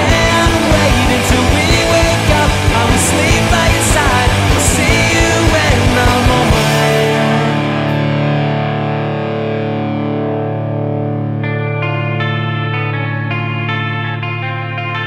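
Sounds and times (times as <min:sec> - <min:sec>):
driving drum beat: 0:00.0 - 0:08.2
distorted electric guitar: 0:00.0 - 0:15.0.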